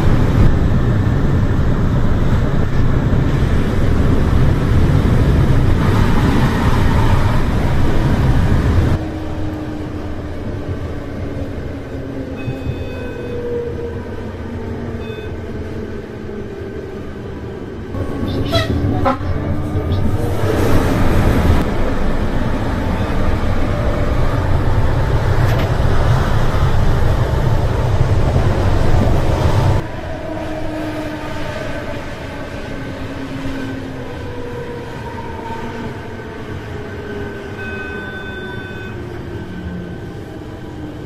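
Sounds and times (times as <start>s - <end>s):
electric train rumbling: 0.0s - 41.0s
falling train whines: 0.0s - 41.0s.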